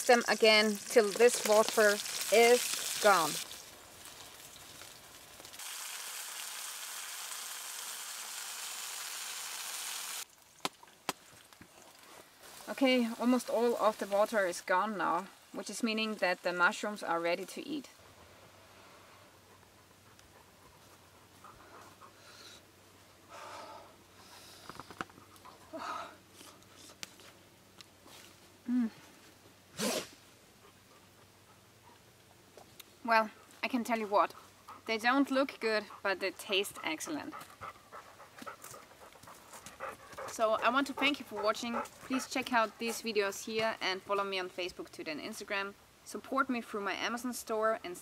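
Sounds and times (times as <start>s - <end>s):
mushrooms sizzling in a pan: 0.0s - 10.3s.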